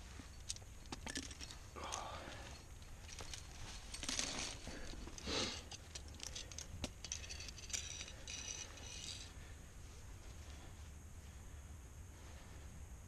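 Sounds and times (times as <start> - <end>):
metal climbing gear clinking: 0.0 - 9.5
short ringing jingles: 5.4 - 9.3.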